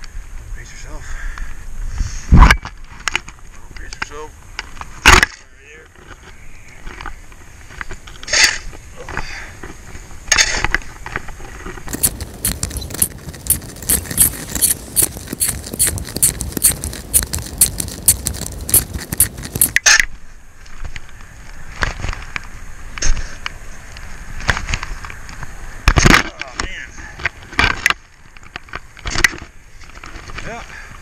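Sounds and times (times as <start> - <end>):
snow shovel scraping pavement: 11.9 - 19.8.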